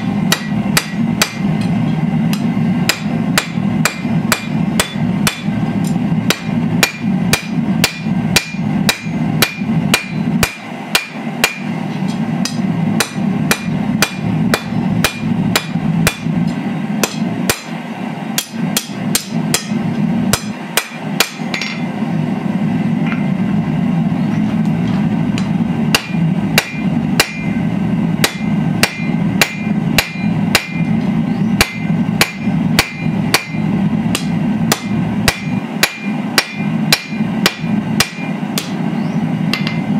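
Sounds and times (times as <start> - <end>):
hammer striking steel on anvil: 0.0 - 22.0, 24.9 - 38.8, 39.5 - 39.9
steady low hum: 0.0 - 39.9.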